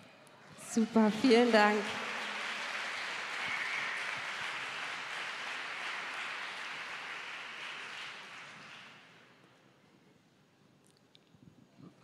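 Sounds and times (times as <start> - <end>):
audience applauding: 0.6 - 9.2.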